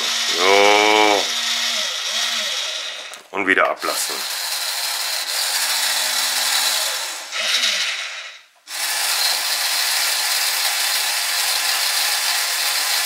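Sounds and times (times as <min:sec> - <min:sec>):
small electric gear motor running: 0:00.0 - 0:03.2.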